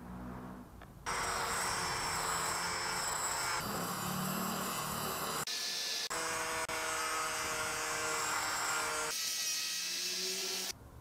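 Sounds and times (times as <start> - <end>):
angle grinder grinding steel: 1.1 - 10.7.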